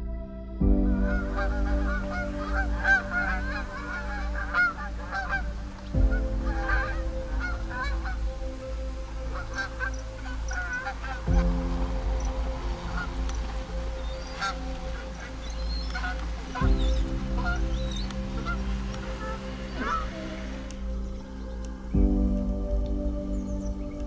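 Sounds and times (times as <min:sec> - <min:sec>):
soft background music: 0:00.0 - 0:24.0
geese honking in flight: 0:01.0 - 0:05.8, 0:06.5 - 0:08.2, 0:09.1 - 0:11.5, 0:12.2 - 0:21.6.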